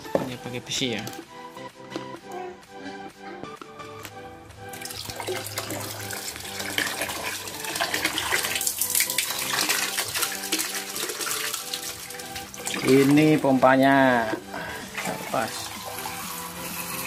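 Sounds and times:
water splashing onto tiles: 0:04.7 - 0:13.4.

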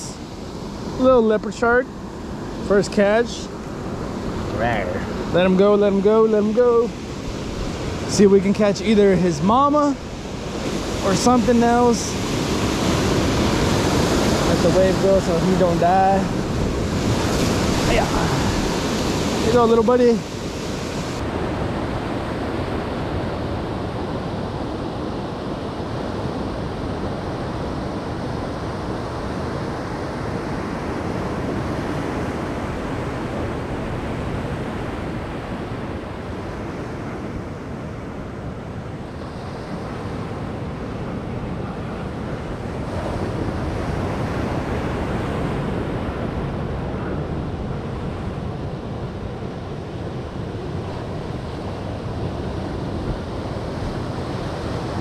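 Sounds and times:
ocean surf breaking: 0:00.0 - 0:55.0
wind buffeting microphone: 0:00.0 - 0:55.0.

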